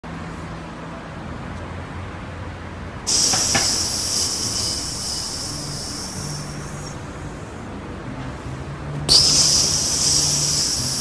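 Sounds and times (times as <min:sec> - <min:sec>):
air hose hissing: 0:03.1 - 0:07.2, 0:09.1 - 0:11.0.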